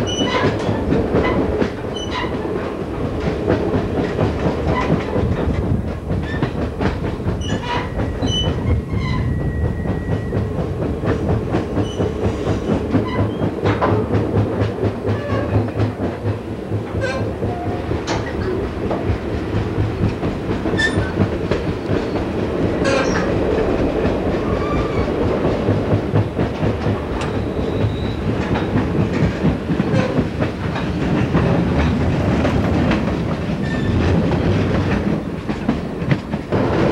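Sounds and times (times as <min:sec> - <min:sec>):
train wheels rumbling on track: 0:00.0 - 0:36.9
sharp track clicks: 0:09.6 - 0:22.3, 0:25.2 - 0:36.9.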